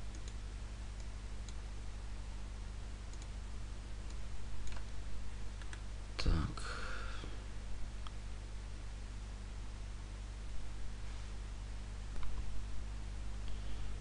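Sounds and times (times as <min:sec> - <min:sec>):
low electrical hum: 0:00.0 - 0:14.0
computer mouse clicks: 0:00.1 - 0:00.4, 0:03.1 - 0:03.3, 0:04.0 - 0:04.9, 0:05.6 - 0:05.8.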